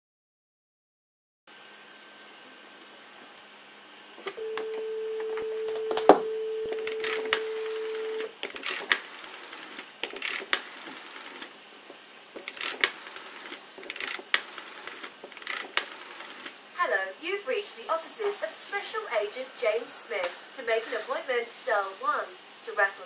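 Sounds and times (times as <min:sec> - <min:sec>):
telephone dial tone: 0:04.3 - 0:08.3.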